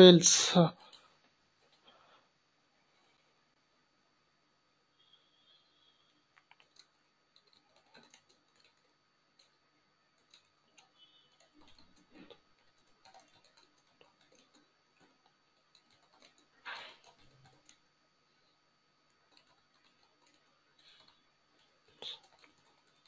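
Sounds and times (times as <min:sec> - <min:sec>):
keyboard typing: 0:06.4 - 0:17.8, 0:19.1 - 0:23.0.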